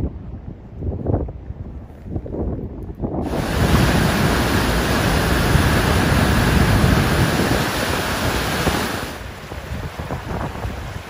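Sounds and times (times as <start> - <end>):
white water rushing: 3.2 - 11.0.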